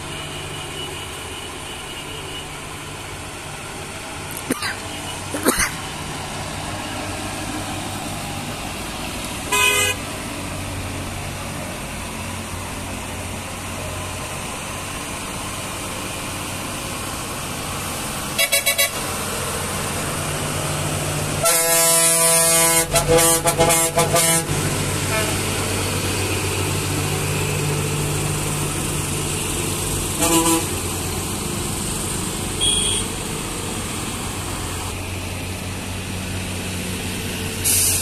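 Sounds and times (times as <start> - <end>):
lorry engines rumbling: 0.0 - 38.0
vehicle horn blasts: 9.5 - 10.0, 18.4 - 19.0, 21.4 - 25.4, 30.2 - 30.7, 32.6 - 33.2.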